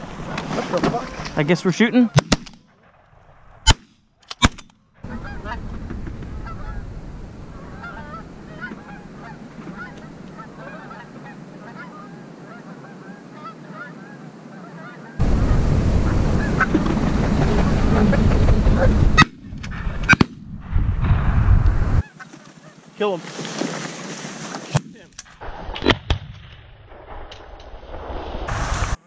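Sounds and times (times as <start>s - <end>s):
shotgun shots: 2.2s - 2.7s
geese honking: 5.0s - 19.3s
loud rumbling noise: 15.2s - 22.0s.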